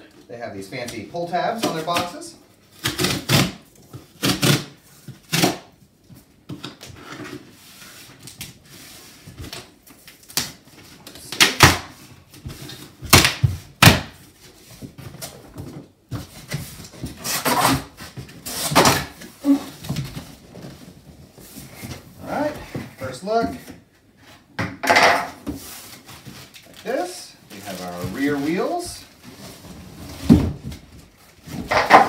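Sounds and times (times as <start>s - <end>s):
cardboard tearing: 1.6s - 5.7s, 17.1s - 20.9s
cardboard rustling: 25.4s - 32.0s.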